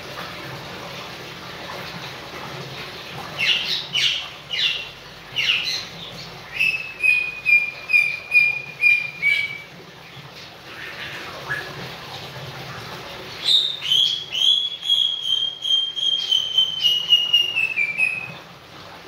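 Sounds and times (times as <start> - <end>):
parrot whistling: 6.5 - 9.7, 13.4 - 18.4.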